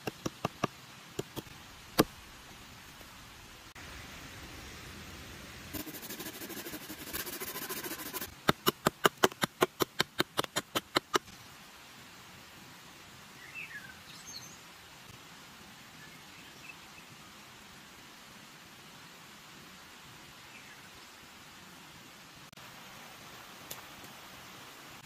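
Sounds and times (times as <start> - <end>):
rasping wood scraping: 5.8 - 10.9
hatchet chopping branch: 8.3 - 11.3.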